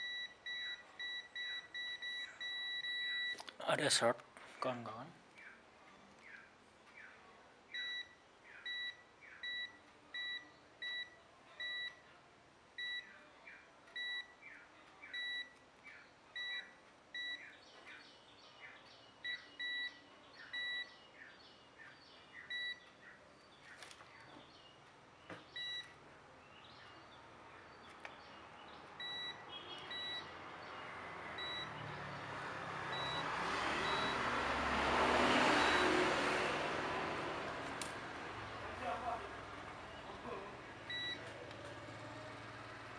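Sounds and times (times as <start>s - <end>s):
multimeter beeping: 0.0s - 3.4s, 7.8s - 12.0s, 12.8s - 13.1s, 14.0s - 14.4s, 15.1s - 15.6s, 16.4s - 17.5s, 19.2s - 20.9s, 22.5s - 22.9s, 25.5s - 26.0s, 29.0s - 30.3s, 31.4s - 31.7s, 32.9s - 33.2s, 33.8s - 34.2s, 40.9s - 41.2s.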